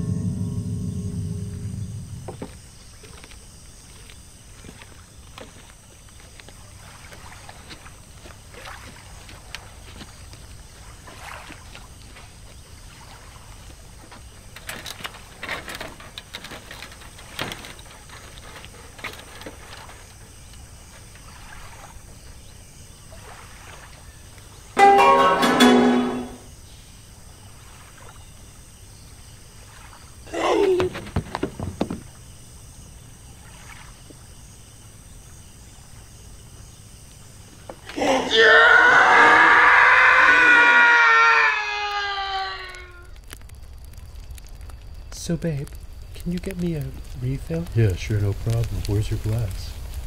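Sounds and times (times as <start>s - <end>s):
music: 0.0s - 2.5s, 24.8s - 26.5s
faint steady hiss: 0.0s - 38.6s, 41.8s - 50.0s
small water splashes: 3.9s - 24.8s, 27.2s - 36.6s
soft knocks: 30.8s - 32.1s.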